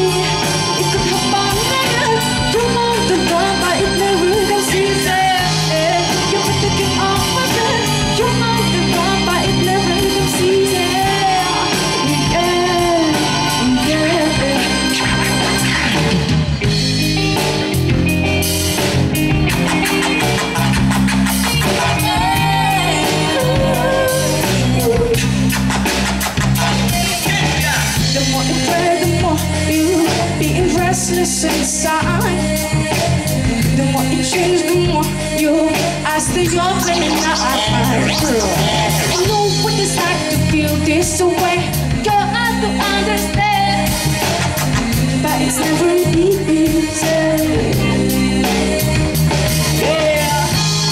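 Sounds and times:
drums: 0:00.0 - 0:50.9
electric bass guitar: 0:00.0 - 0:50.9
live band playing pop song: 0:00.0 - 0:50.9
wavering melody line: 0:34.7 - 0:40.3.

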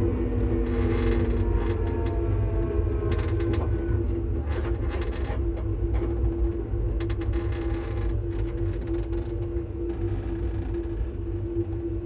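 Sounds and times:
traction motor hum: 0:00.0 - 0:06.3.

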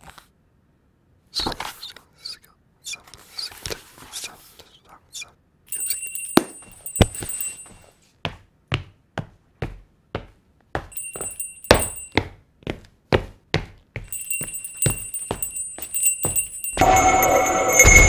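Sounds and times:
high jingling tinkle: 0:05.7 - 0:07.9, 0:10.9 - 0:12.2, 0:14.1 - 0:18.0
footsteps on wooden floor: 0:13.2 - 0:16.8.

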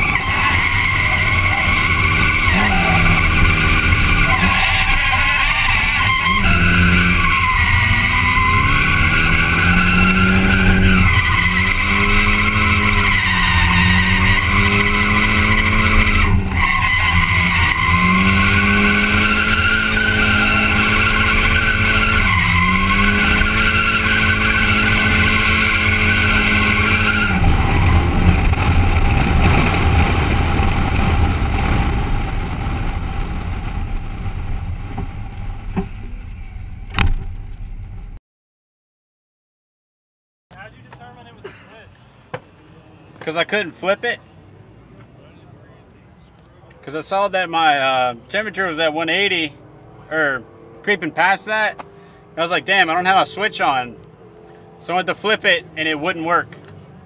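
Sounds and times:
tyres squealing: 0:00.0 - 0:29.5
car engine at high revs: 0:00.0 - 0:37.6, 0:48.2 - 0:57.0.

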